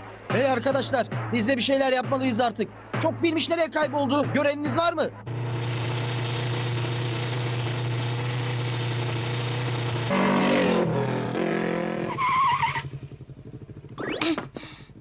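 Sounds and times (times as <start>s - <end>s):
animated motorbike engine drone: 5.2s - 15.0s
tyre squeal: 11.6s - 13.0s.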